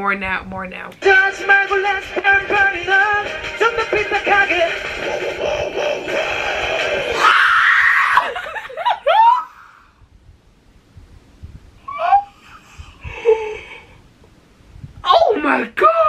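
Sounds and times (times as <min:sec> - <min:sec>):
song over speakers: 0:01.0 - 0:07.3
woman screaming in excitement: 0:07.2 - 0:09.8
woman squealing: 0:07.2 - 0:09.9, 0:11.8 - 0:12.6.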